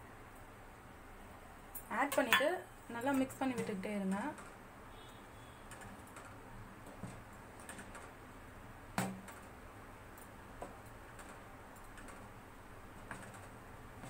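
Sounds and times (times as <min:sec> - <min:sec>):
spoon stirring in a metal pot: 0:02.0 - 0:03.8
spoon knocking against pot: 0:02.1 - 0:02.6.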